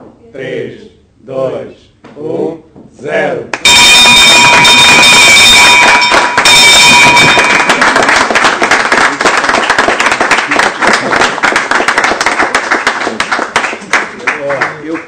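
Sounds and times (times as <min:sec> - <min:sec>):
group applauding: 0:03.5 - 0:15.0
bell ringing: 0:03.6 - 0:08.4.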